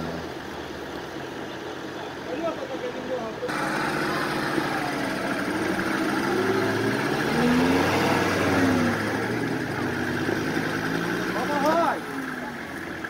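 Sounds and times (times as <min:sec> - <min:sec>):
off-road vehicle engine revving: 0:00.0 - 0:01.2, 0:03.4 - 0:13.0.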